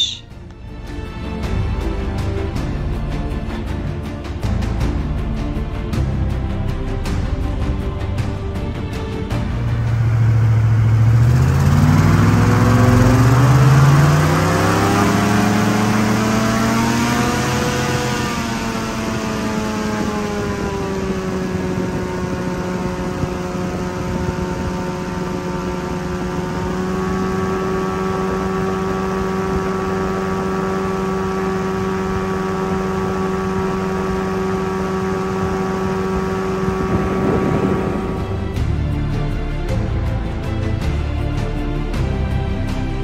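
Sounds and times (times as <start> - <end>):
boat engine running: 0.0 - 6.0, 6.9 - 43.0.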